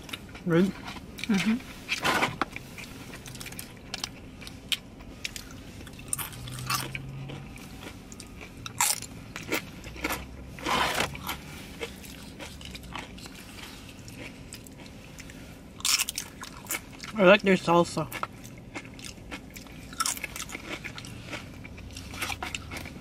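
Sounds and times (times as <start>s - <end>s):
crunching and chewing: 0.0s - 23.0s.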